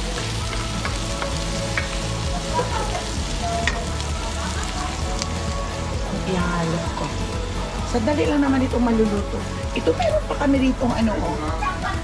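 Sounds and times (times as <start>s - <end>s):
onions sizzling in oil: 0.0s - 12.0s.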